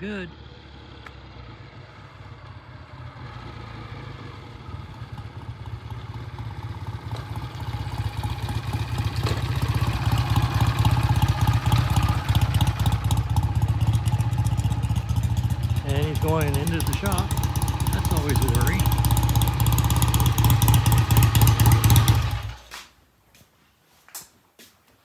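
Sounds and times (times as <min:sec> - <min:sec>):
motorcycle engine approaching: 0:00.0 - 0:22.6.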